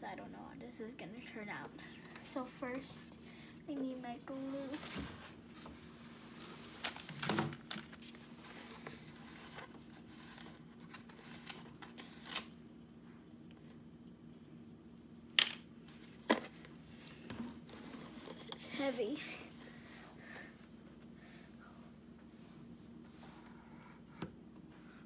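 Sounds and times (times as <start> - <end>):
faint steady hum: 0.0 - 25.0
plastic rustles and clicks: 6.7 - 12.6.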